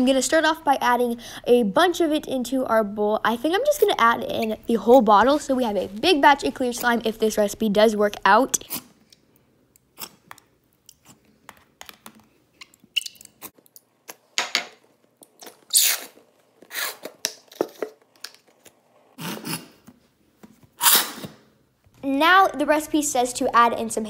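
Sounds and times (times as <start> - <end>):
squeeze bottle squirting: 15.4 - 17.4.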